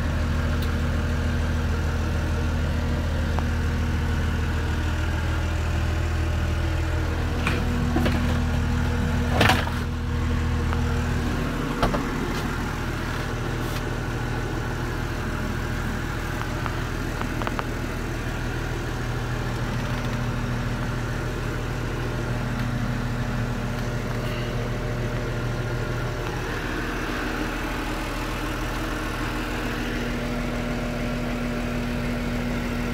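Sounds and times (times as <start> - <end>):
diesel engine idling: 0.0 - 32.9.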